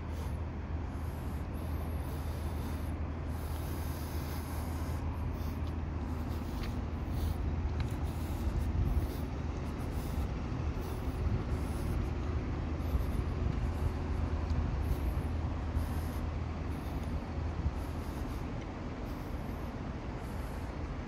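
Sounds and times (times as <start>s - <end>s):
low rumble of vehicle engines: 0.0s - 21.0s.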